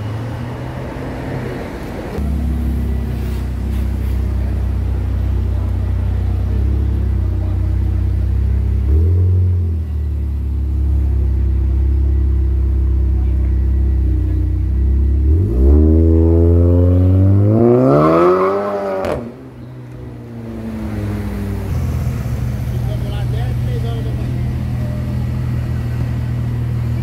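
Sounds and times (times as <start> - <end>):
car engine idling and revving: 0.0 - 27.0
exhaust crack: 18.8 - 27.0.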